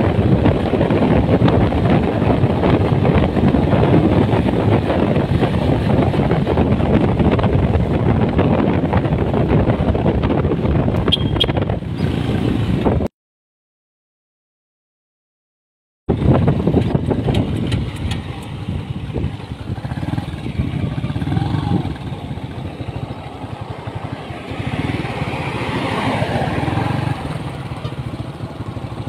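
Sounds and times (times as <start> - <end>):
motorcycle road noise: 0.0 - 13.1, 16.1 - 29.0
wind buffeting microphone: 0.0 - 13.1, 16.1 - 29.0.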